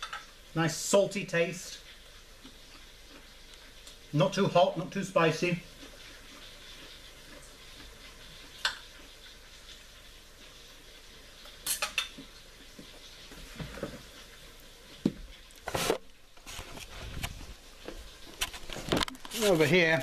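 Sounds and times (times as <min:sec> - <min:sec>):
cutlery clatter: 0:11.6 - 0:12.2
cutlery clinking on a plate: 0:11.6 - 0:12.2.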